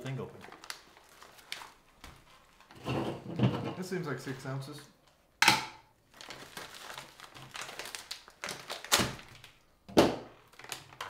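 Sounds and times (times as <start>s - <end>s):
food pouch rustling and crinkling: 0.0s - 2.7s, 6.0s - 9.6s, 10.4s - 11.0s.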